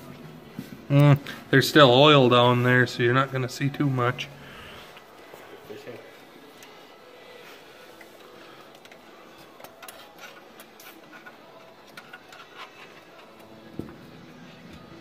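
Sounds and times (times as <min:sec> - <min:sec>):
metallic clicks and scraping of gears: 0:08.7 - 0:13.6.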